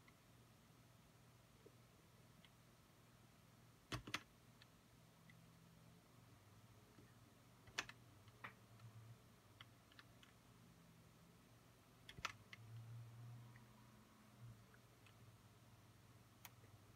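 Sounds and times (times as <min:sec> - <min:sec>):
faint low hum: 0:00.0 - 0:16.9
keyboard clicks: 0:03.9 - 0:04.7, 0:07.6 - 0:08.9, 0:12.0 - 0:12.6.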